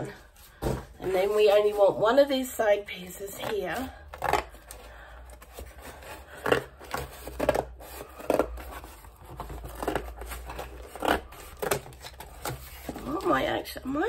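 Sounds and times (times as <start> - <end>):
scissors cutting cardboard: 3.3 - 13.4.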